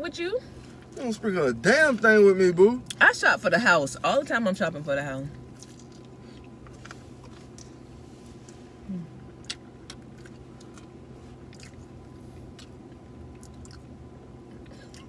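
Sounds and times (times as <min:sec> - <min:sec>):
low hum inside car: 0:00.0 - 0:15.0
person humming briefly: 0:08.9 - 0:09.2.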